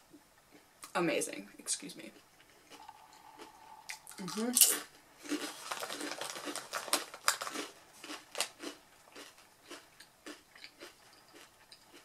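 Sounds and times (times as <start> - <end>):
potato chips crunching: 2.7 - 12.0.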